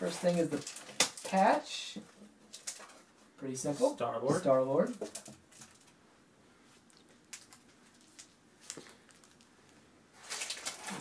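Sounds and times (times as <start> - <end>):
packaging rustling: 0.0 - 1.7, 2.5 - 3.1, 4.8 - 6.0, 6.8 - 9.6, 10.2 - 11.0.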